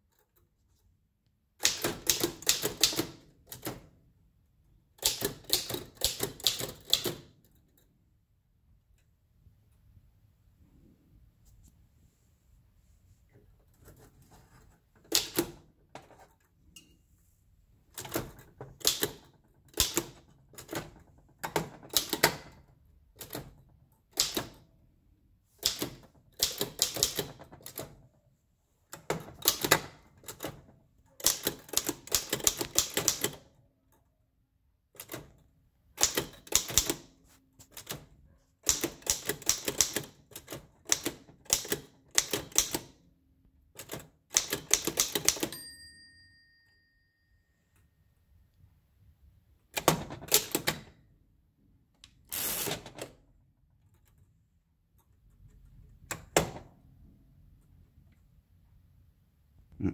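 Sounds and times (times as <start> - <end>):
typewriter keystrokes clacking: 1.6 - 4.0, 5.0 - 7.5, 15.0 - 15.7, 18.0 - 24.6, 25.6 - 28.0, 29.0 - 33.6, 35.0 - 43.0, 43.8 - 45.6, 49.8 - 51.0
typewriter bell ringing: 45.1 - 47.8.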